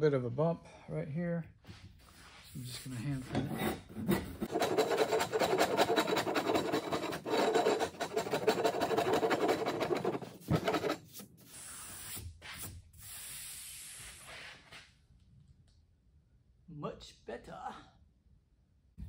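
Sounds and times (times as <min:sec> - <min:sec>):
hand plane scraping wood: 0:03.4 - 0:11.2
quiet rubbing: 0:04.4 - 0:11.0.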